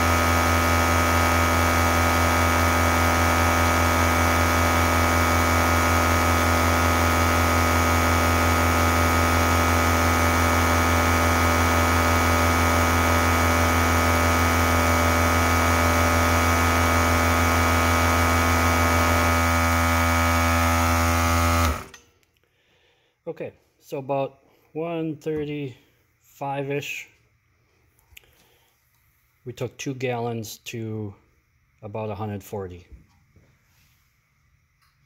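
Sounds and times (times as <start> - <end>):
air compressor motor hum: 0.0 - 22.0.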